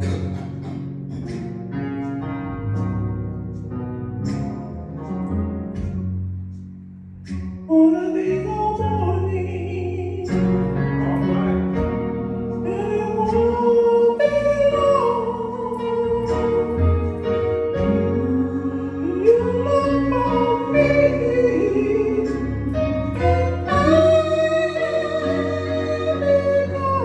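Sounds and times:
instrumental accompaniment: 0.0 - 27.0
men's gospel choir singing: 14.2 - 27.0.

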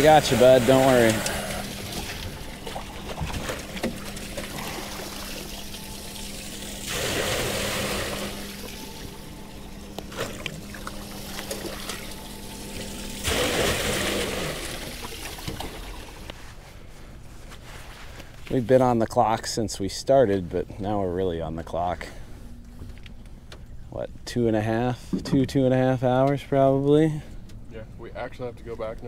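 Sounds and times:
water dribbling: 0.0 - 16.3
water pouring and splashing: 0.0 - 16.3.

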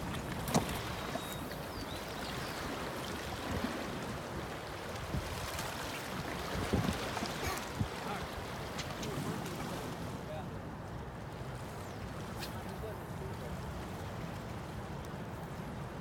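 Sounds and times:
river water washing along bank: 0.0 - 10.6.

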